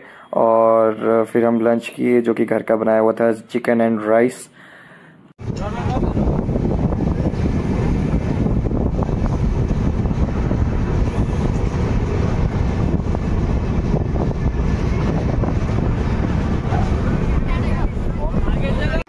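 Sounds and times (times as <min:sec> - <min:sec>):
vehicle rumble: 0:05.4 - 0:19.0.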